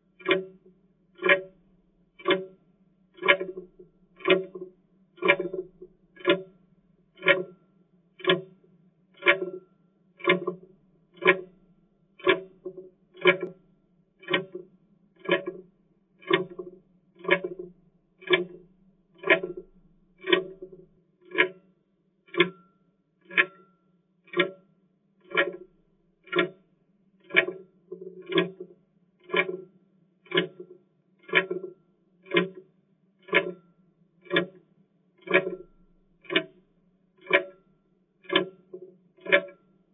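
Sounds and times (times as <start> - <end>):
clock ticking: 0.2 - 0.6, 1.2 - 1.5, 2.2 - 2.6, 3.2 - 6.5, 7.2 - 7.6, 8.2 - 8.5, 9.2 - 9.6, 10.2 - 10.6, 11.2 - 11.6, 12.2 - 13.6, 14.2 - 15.6, 16.2 - 21.6, 22.3 - 22.6, 23.2 - 23.6, 24.3 - 24.6, 25.3 - 25.6, 26.2 - 26.6, 27.2 - 27.7, 28.3 - 29.6, 30.2 - 32.6, 33.2 - 34.6, 35.2 - 39.6.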